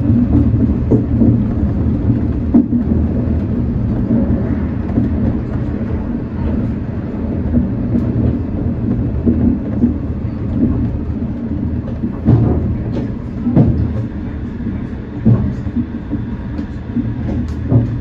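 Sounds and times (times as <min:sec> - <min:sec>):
monorail car low rumble: 0:00.0 - 0:18.0.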